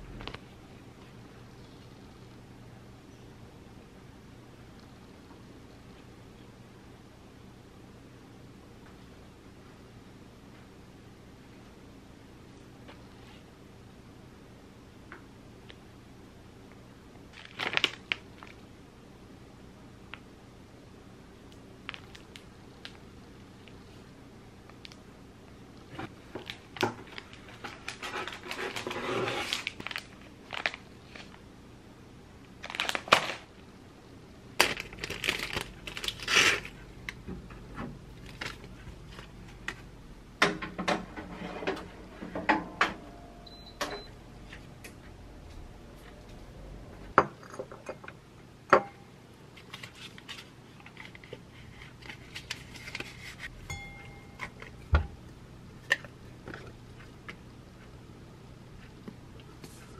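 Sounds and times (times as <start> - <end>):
plastic packaging rustling: 17.3 - 18.6, 21.8 - 23.0, 26.1 - 31.4, 32.6 - 33.6, 34.6 - 37.0, 38.2 - 39.8, 49.5 - 53.5
short electronic beeps: 43.2 - 44.2
dishes clinking: 47.2 - 48.1, 53.6 - 55.2.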